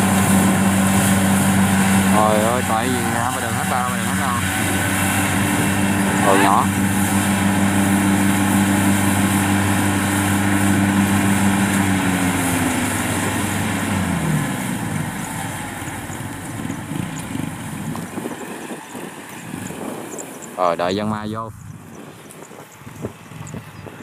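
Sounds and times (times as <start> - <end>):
engine running: 0.0 - 24.0.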